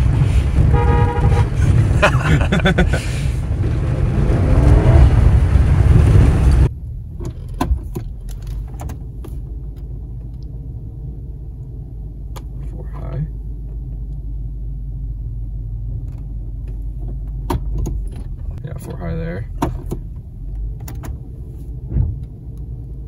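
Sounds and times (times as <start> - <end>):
truck driving rumble: 0.0 - 23.0
truck horn: 0.6 - 1.7.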